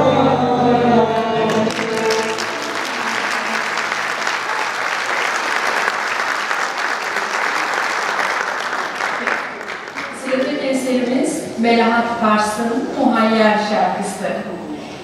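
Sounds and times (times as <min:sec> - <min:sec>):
woman and choir singing: 0:00.0 - 0:04.3
oud ensemble: 0:00.0 - 0:08.4
audience applause: 0:01.4 - 0:10.6.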